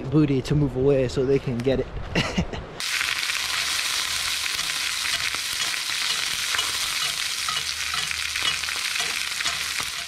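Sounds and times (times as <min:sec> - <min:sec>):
fish sizzling in oil: 0:02.8 - 0:10.0.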